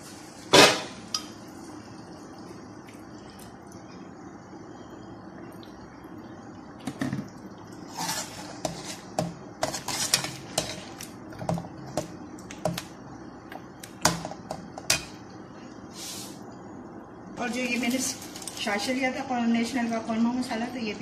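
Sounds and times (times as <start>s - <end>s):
metal ladle scraping a metal pot: 7.9s - 10.8s.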